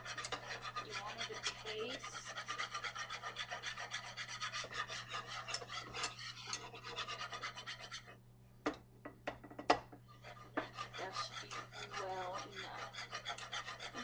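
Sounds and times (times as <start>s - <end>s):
utensil scraping a metal skillet: 0.0s - 8.2s, 10.1s - 14.0s
taps on a pan: 8.6s - 10.0s.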